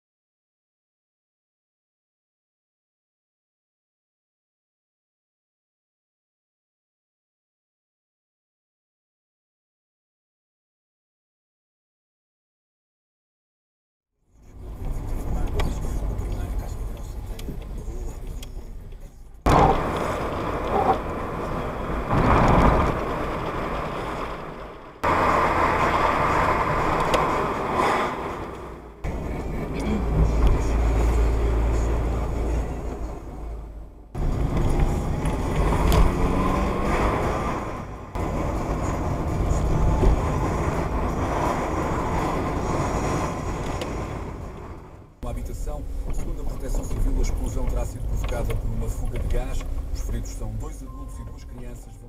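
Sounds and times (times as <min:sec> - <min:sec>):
car cabin road and engine noise: 0:14.3 - 0:52.0.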